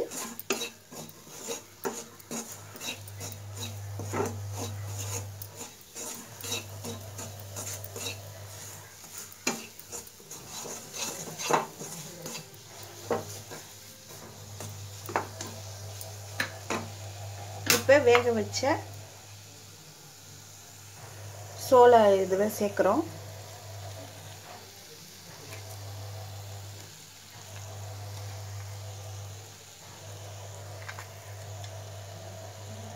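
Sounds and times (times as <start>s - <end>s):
wooden spatula scraping steel pan: 0.0s - 19.0s.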